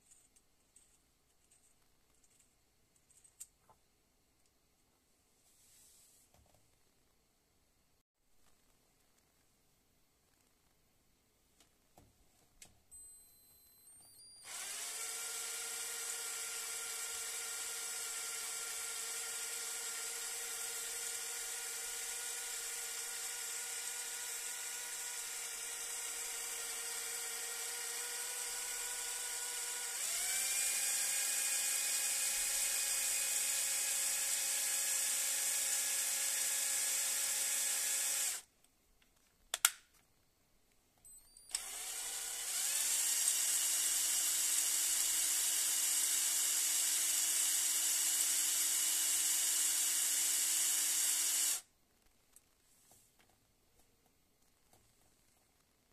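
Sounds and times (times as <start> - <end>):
cordless drill whining: 13.0 - 38.5, 41.2 - 51.7.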